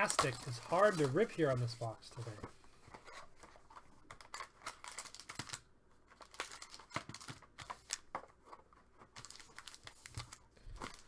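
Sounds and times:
plastic wrap and cardboard crinkling: 0:00.0 - 0:02.4.

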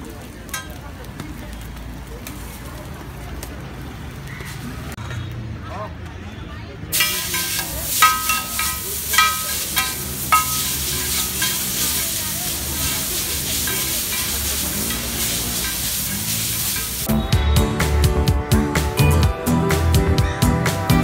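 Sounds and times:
noodles sizzling on griddle: 0:00.0 - 0:04.6, 0:06.9 - 0:17.1
metal spatulas scraping: 0:07.0 - 0:12.1, 0:12.8 - 0:17.1
spatulas clanking on griddle: 0:07.0 - 0:17.1.

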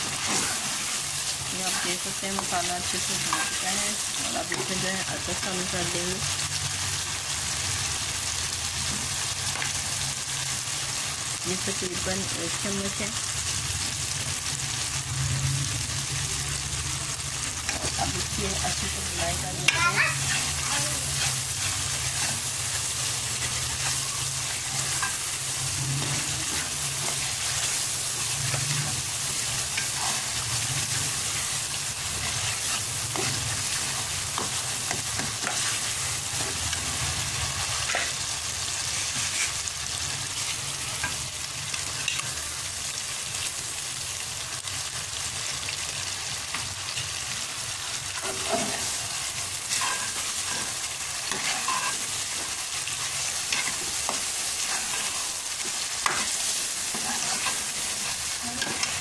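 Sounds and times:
masala sizzling in a pan: 0:00.0 - 0:59.0
metal spoon scraping a pan: 0:03.2 - 0:03.7, 0:18.7 - 0:36.8, 0:38.9 - 0:39.6, 0:48.1 - 0:59.0.

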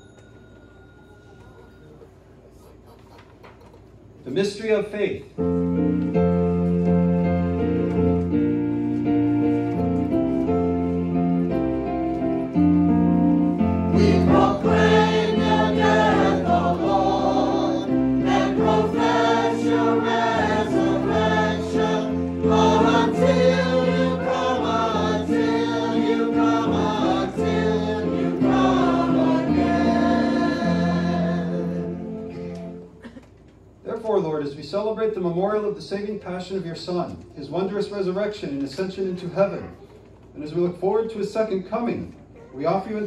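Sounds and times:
sustained keyboard chords: 0:05.4 - 0:33.0
voices singing: 0:13.8 - 0:32.8.

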